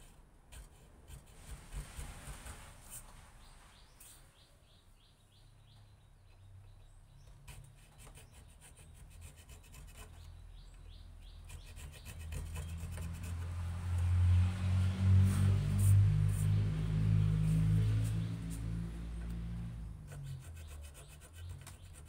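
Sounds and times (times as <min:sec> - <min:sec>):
hand chisel scraping wood: 0:00.0 - 0:04.1, 0:07.3 - 0:14.2, 0:17.6 - 0:22.0.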